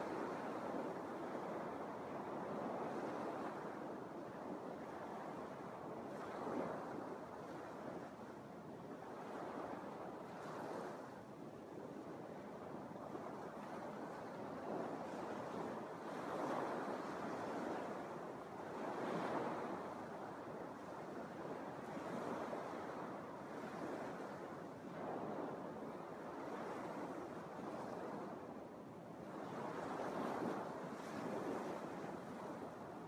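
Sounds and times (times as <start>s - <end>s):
wind on microphone: 0.0s - 8.3s, 8.9s - 33.0s
waves washing onto sand: 12.2s - 33.0s.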